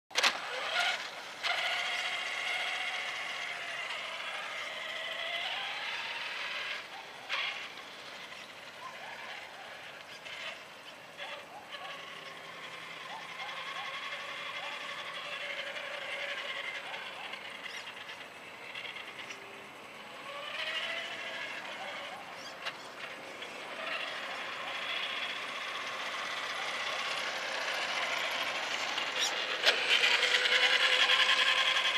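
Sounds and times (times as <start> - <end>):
toy truck motor whining: 0.1 - 31.9.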